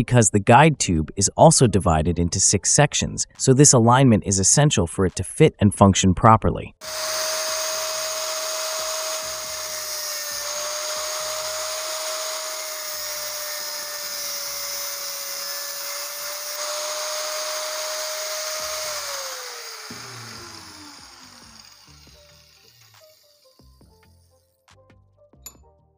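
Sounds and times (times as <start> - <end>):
angle grinder cutting metal: 6.8 - 23.8.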